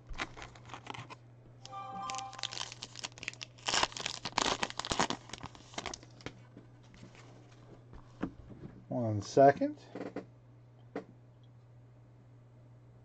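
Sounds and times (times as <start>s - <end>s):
plastic wrapper crinkling: 0.0s - 1.2s, 2.0s - 6.3s.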